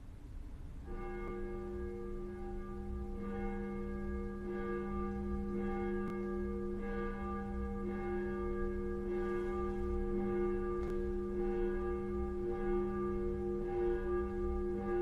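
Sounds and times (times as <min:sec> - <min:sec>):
church bell tolling: 0:00.8 - 0:15.0.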